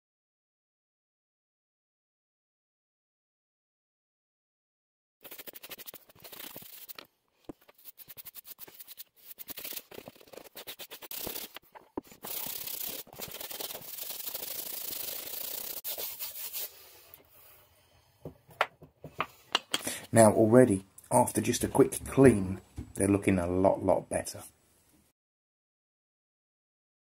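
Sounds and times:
scrubbing leather boot: 5.2s - 16.7s.

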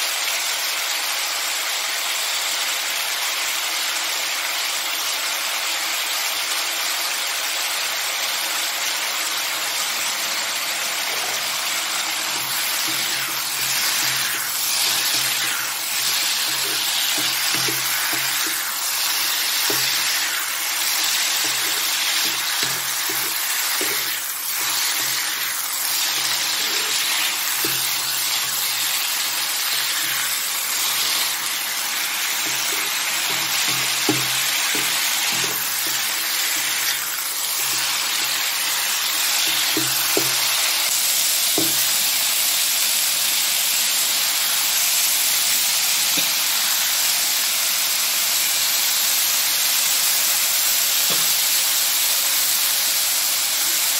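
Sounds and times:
stir-fry sizzling in a wok: 0.0s - 53.9s
spatula scraping in a wok: 10.6s - 42.0s.

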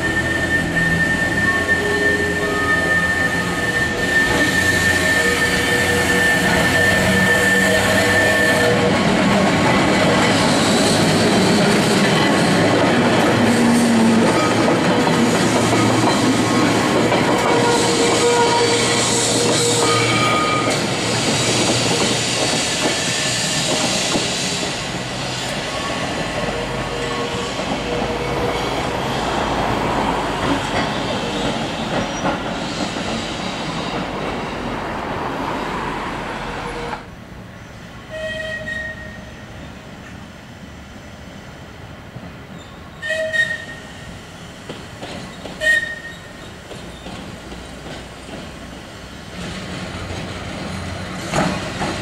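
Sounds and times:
wheels squealing: 0.0s - 9.0s
tram wheels rumbling on rail: 0.0s - 52.0s.

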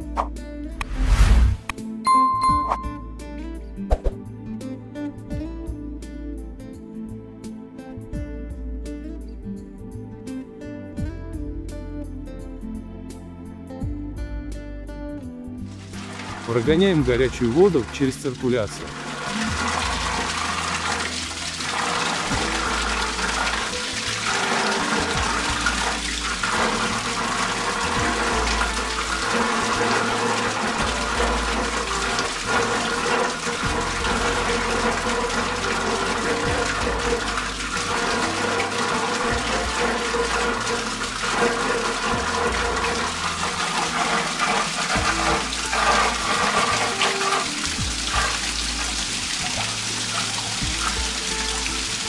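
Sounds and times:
background music: 0.0s - 52.0s
water gushing into a bucket: 15.7s - 52.0s
water splashing on metal grate: 15.7s - 52.0s.

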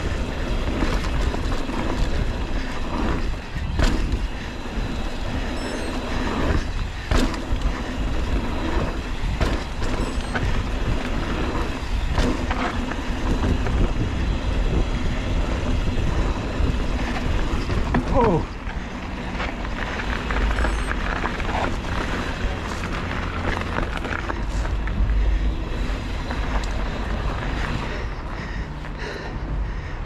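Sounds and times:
bike knocking over bumps: 0.0s - 27.9s
tyre and drivetrain rattle: 0.0s - 30.0s
wind on microphone: 8.0s - 18.4s.

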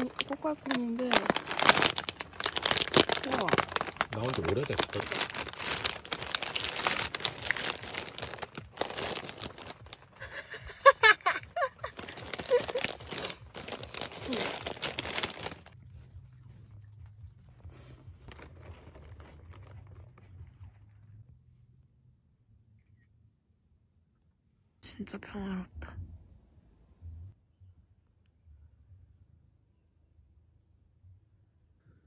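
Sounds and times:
plastic bag crinkling and tearing: 0.0s - 15.8s, 18.2s - 20.6s
quiet low hum: 0.0s - 32.0s.

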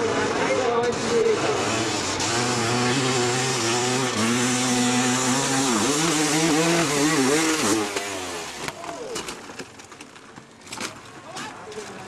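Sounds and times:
dirt bike engine revving: 0.0s - 8.8s.

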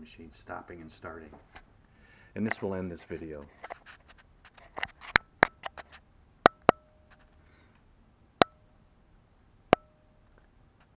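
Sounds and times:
faint ringing tone: 6.5s - 7.7s, 9.7s - 10.3s.

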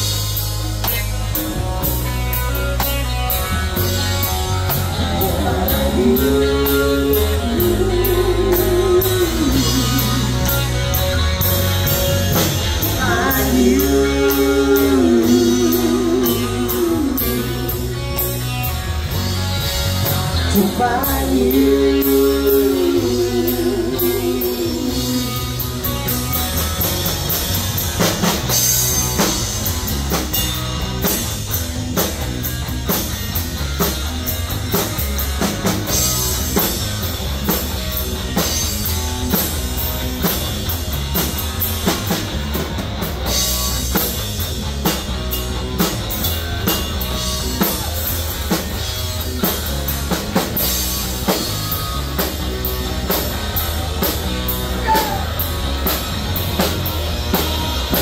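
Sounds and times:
drum kit driving beat: 0.0s - 58.0s
electric guitars: 0.0s - 58.0s
rock band playing: 0.0s - 58.0s.

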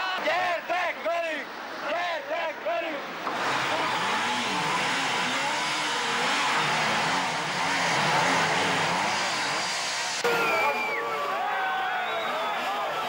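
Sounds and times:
motorcycle engines revving: 3.2s - 10.3s.

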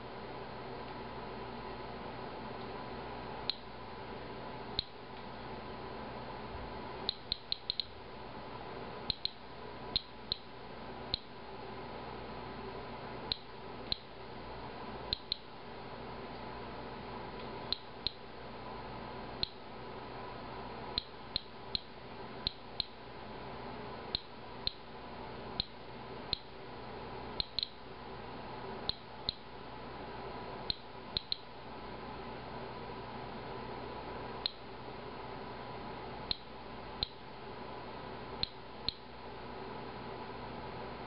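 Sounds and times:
faint steady hum: 0.0s - 41.0s
geiger counter clicking: 3.5s - 3.7s, 4.8s - 5.0s, 7.1s - 8.0s, 9.1s - 9.4s, 10.0s - 10.5s, 11.1s - 11.3s, 13.3s - 14.1s, 15.1s - 15.5s, 17.7s - 18.2s, 19.4s - 19.6s, 21.0s - 21.9s, 22.5s - 23.0s, 24.2s - 24.8s, 25.6s - 26.5s, 27.4s - 27.8s, 30.7s - 31.5s, 36.3s - 37.2s, 38.4s - 39.0s.

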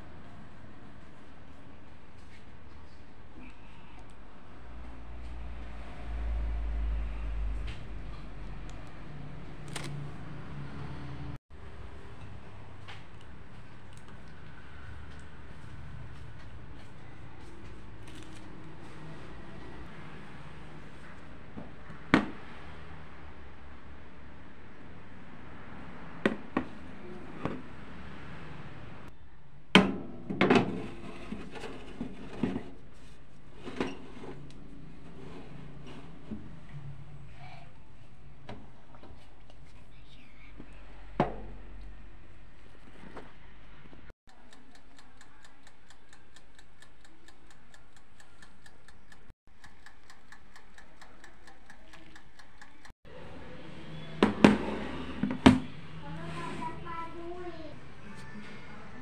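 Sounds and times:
oven timer ticking: 44.3s - 53.0s.

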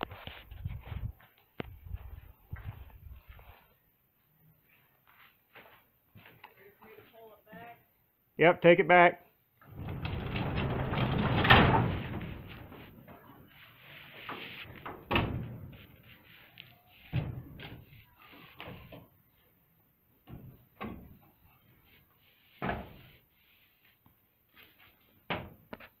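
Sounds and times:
hay trolley knocking and clunking: 9.6s - 13.2s.

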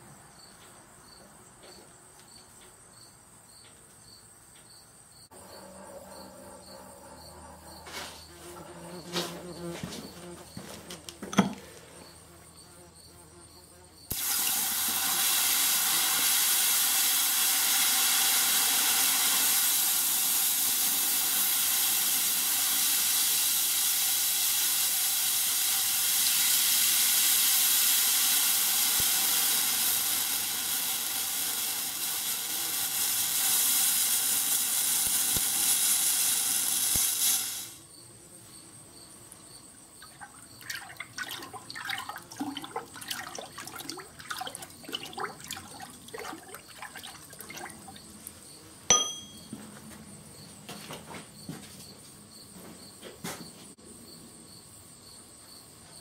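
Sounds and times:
hiss of boiling water: 14.1s - 37.9s, 40.0s - 48.4s
water sloshing in a tub: 40.0s - 48.3s.

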